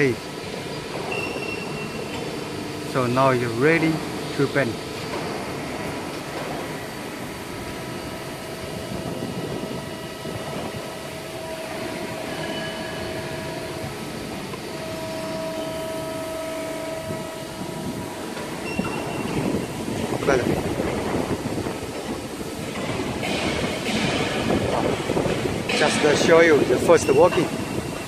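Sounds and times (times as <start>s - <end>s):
hydraulic pump humming: 0.0s - 28.0s
higher machine tone: 11.0s - 20.4s.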